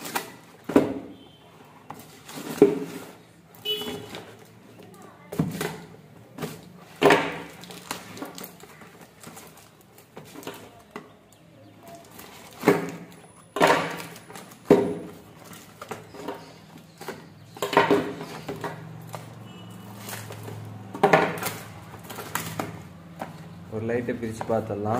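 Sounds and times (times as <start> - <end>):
cardboard boxes knocking and rattling: 0.0 - 1.2, 1.9 - 4.4, 5.3 - 11.0, 12.0 - 23.6.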